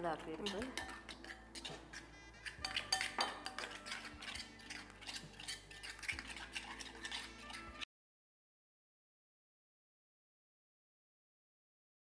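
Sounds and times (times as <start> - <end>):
spoon stirring in glass bowl: 0.2 - 7.8.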